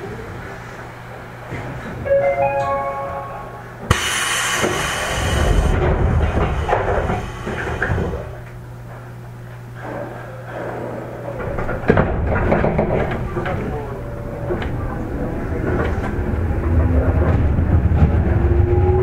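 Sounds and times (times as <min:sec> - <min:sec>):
ascending chime: 0:02.1 - 0:03.9
compressed air rushing: 0:03.9 - 0:08.4.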